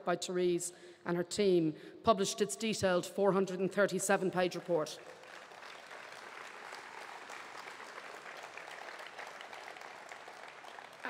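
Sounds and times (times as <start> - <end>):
crowd applauding: 4.9 - 11.0.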